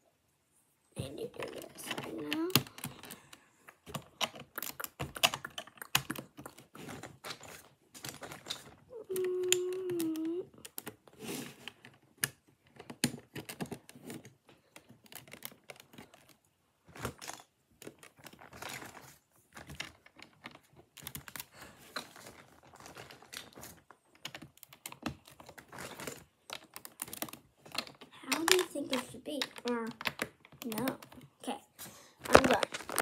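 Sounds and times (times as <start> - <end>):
plastic bricks clicking: 1.4 - 31.3
child humming: 8.9 - 10.6.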